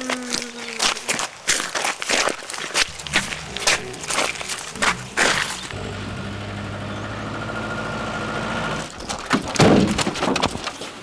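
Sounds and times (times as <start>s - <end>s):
crunching footsteps: 0.0s - 5.8s
car engine running: 2.9s - 9.0s.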